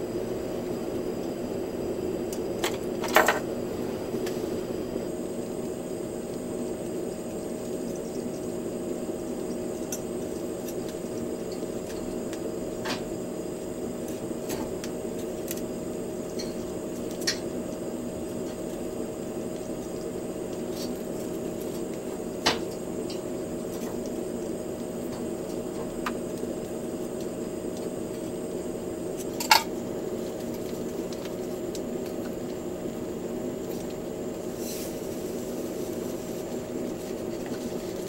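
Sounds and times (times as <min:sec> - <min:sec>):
low steady hum: 0:00.0 - 0:38.0
chopsticks tapping wire grill: 0:14.1 - 0:18.8, 0:29.1 - 0:29.7.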